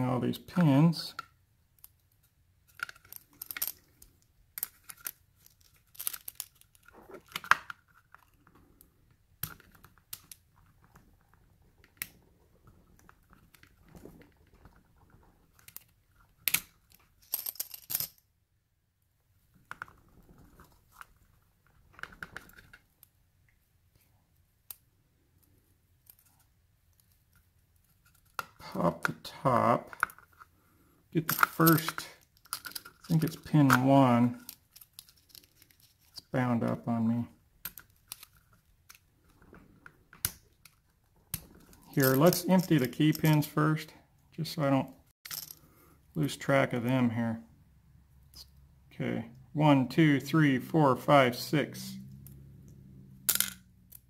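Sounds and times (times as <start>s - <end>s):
sharp clicks of lock parts: 15.6s - 18.2s.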